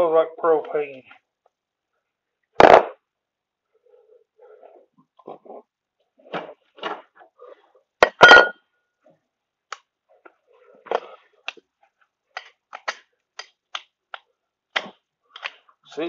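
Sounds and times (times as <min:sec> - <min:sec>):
ringing metal clank: 0:08.1 - 0:08.6.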